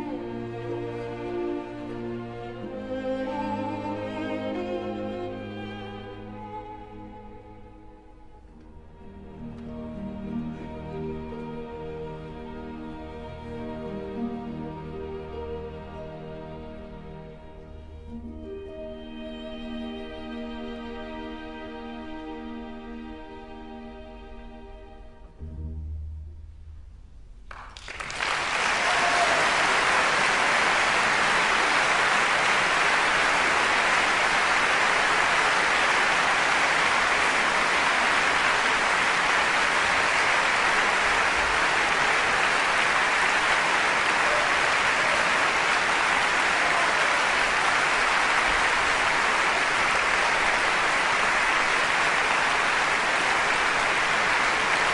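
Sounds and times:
large audience applauding: 27.5 - 54.9.

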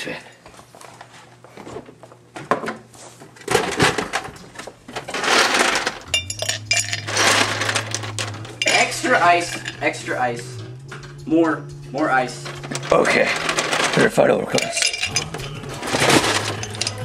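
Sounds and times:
steady low hum: 4.2 - 17.0
ice cubes clattering into a glass mug: 5.1 - 9.9, 12.5 - 17.0.

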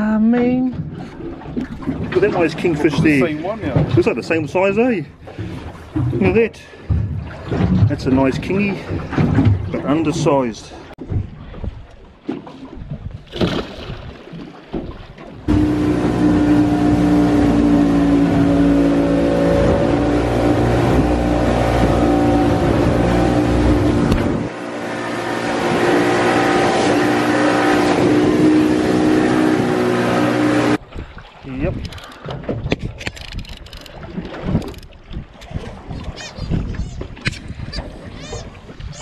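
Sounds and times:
wind: 0.0 - 39.0
rushing water: 0.8 - 39.0
outboard motor running: 14.7 - 30.8.

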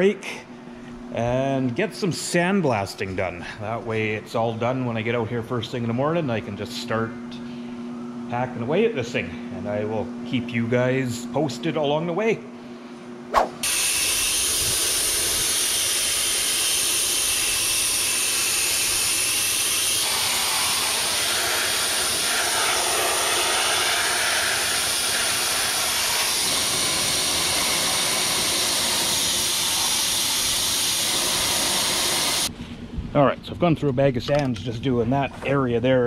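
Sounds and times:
sandblaster hissing: 13.5 - 32.5.

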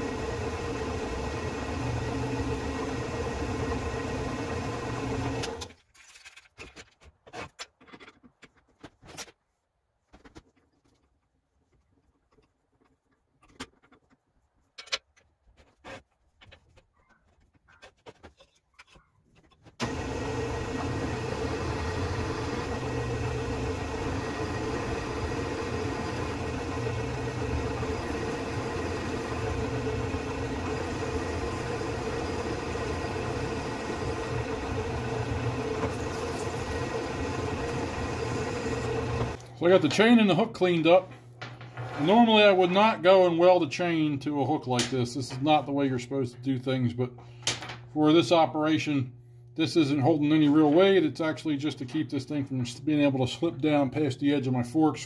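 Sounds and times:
drill bit drilling steel: 0.0 - 5.7, 19.8 - 39.4
drill press motor hum: 0.0 - 5.7, 19.8 - 39.6.

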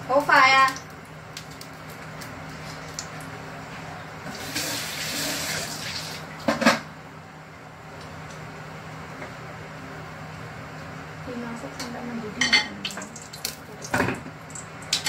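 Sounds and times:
water running from tap: 0.1 - 3.3, 4.3 - 6.4, 12.8 - 15.0.

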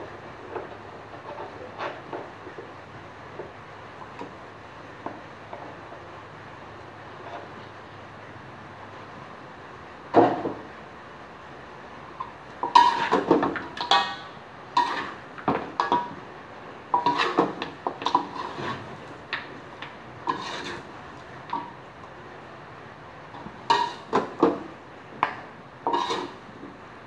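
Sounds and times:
metal utensils scraping a wok: 12.6 - 16.2, 16.9 - 19.2, 20.2 - 21.7, 23.6 - 24.6, 25.8 - 26.5.

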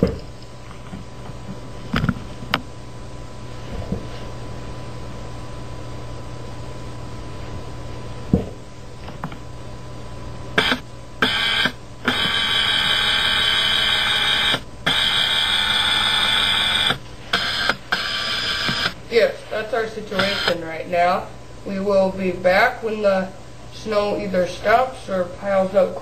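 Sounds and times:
faint steady hum: 0.0 - 26.0
loud high alarm buzzing: 10.6 - 20.8.

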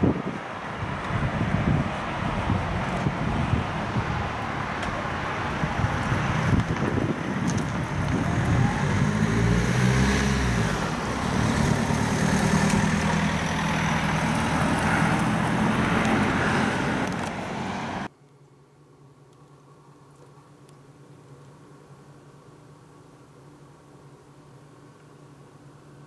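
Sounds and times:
jet engines rumbling overhead: 0.0 - 9.8.

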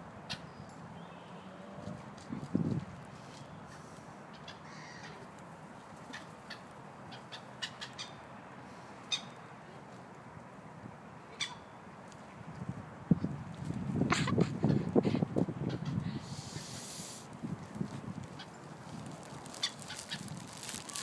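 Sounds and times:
faint bird calls: 3.6 - 5.3, 9.0 - 9.4.

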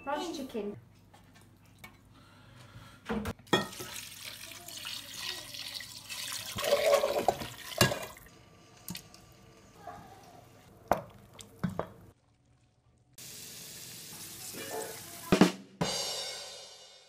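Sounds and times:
water running and splashing: 3.6 - 8.3.

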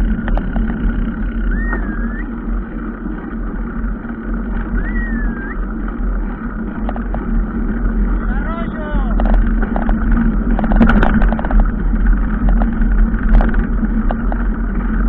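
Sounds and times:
engine running low rumble: 0.0 - 15.0
rising and falling whistles: 1.5 - 2.3, 4.8 - 5.6.

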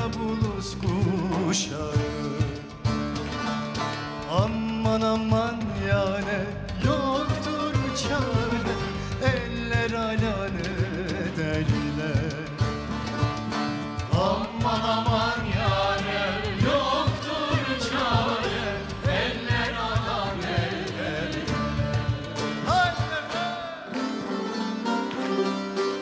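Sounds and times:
low drums: 0.0 - 23.5
folk ensemble with lute: 0.0 - 26.0
chorus singing: 13.7 - 25.1.

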